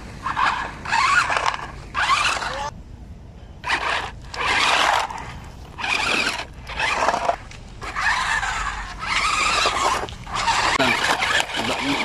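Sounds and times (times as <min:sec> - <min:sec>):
toy car electric motors whining: 0:00.2 - 0:02.7, 0:03.6 - 0:12.0.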